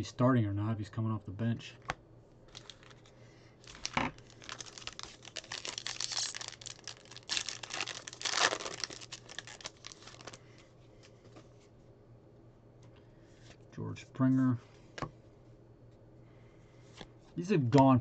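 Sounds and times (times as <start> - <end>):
foil wrapper crinkling and tearing: 2.5 - 10.4.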